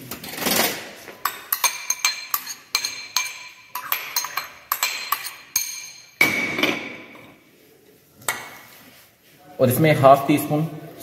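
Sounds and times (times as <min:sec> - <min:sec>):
metal spoon clinking ceramic bowl: 0:01.2 - 0:06.3.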